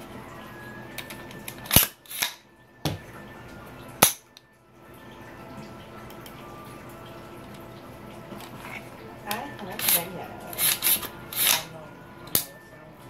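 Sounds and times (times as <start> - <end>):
metal gun parts clicking together: 1.0 - 2.4.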